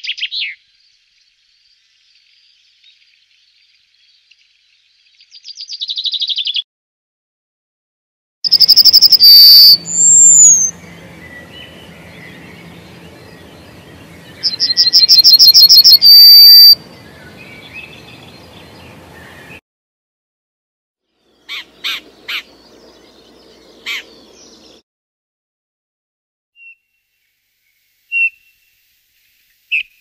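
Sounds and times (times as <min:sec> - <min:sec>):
sharp bird calls: 0:00.0 - 0:00.7, 0:08.5 - 0:19.6, 0:21.2 - 0:24.8
bird singing high notes: 0:08.5 - 0:19.6.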